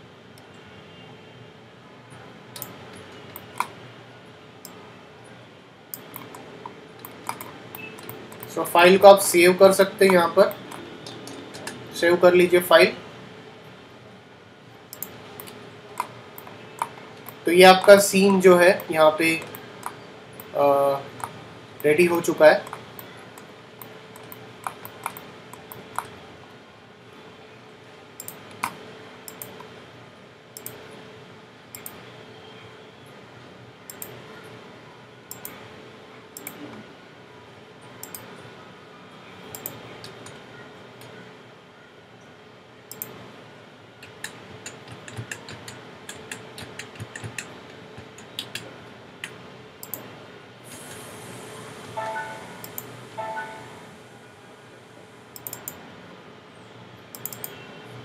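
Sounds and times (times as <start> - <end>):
faint steady hum: 0.0 - 58.0
mouse and keyboard clicks: 2.6 - 3.8, 6.0 - 8.6, 14.9 - 18.0, 22.6 - 26.1, 39.5 - 40.4, 44.0 - 50.0, 57.1 - 57.6
soft hiss: 50.6 - 55.4.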